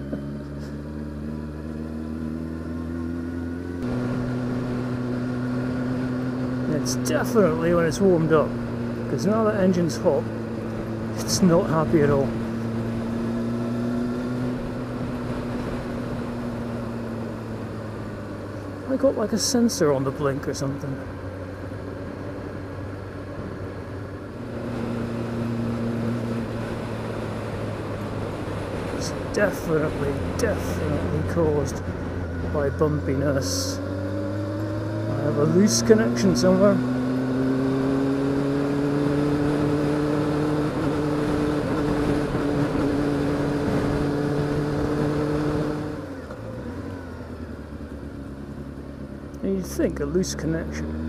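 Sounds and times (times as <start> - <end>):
motorcycle engine running: 0.0 - 51.0.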